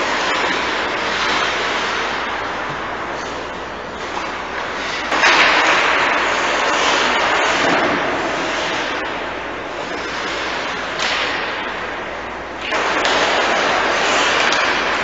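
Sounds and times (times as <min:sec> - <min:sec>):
skates hissing on ice: 0:04.0 - 0:11.5, 0:12.7 - 0:15.0.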